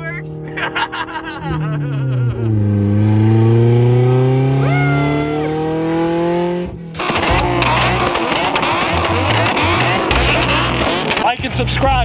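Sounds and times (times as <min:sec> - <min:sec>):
car engine at high revs: 0:00.0 - 0:11.6
noisy jumble: 0:06.9 - 0:11.4.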